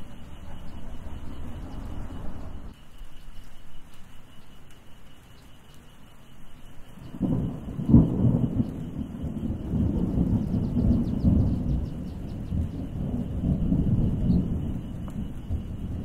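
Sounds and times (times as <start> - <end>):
rolling thunder: 0.0 - 2.7, 7.0 - 16.0
rain: 0.0 - 16.0
sharp thunder crack: 7.1 - 16.0.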